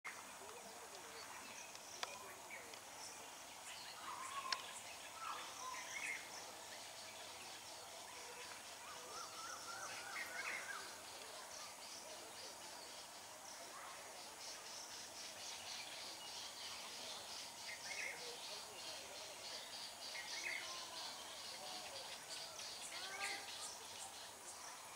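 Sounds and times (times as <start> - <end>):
faint high hiss: 0.1 - 24.9
birds chirping and calling: 0.4 - 24.9
warbling bird calls: 0.6 - 24.9.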